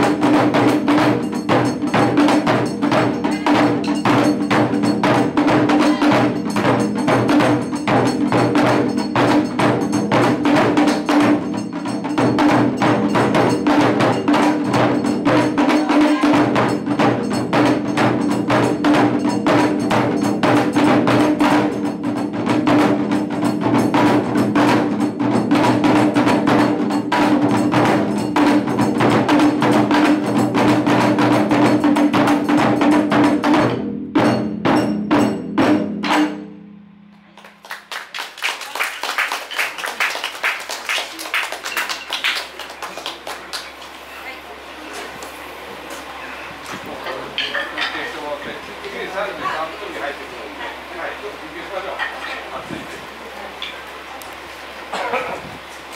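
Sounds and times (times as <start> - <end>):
large barrel drum beats: 0.0 - 37.6
small drum rapid strikes: 0.0 - 42.4.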